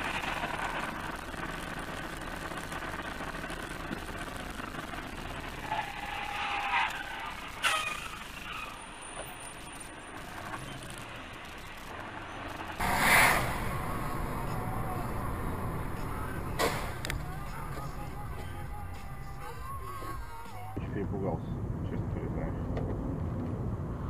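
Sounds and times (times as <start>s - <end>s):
vehicle and road rumble: 0.0s - 24.0s
sharp bang: 12.8s - 18.6s
loud hissing burst: 12.8s - 19.4s.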